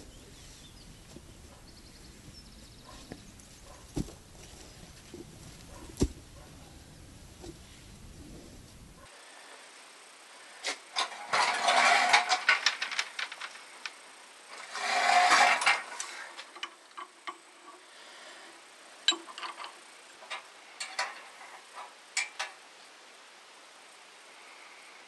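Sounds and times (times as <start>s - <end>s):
metal rasping scrape: 11.0s - 12.8s, 14.5s - 16.5s
metal tools clinking: 11.0s - 13.5s, 19.1s - 21.5s.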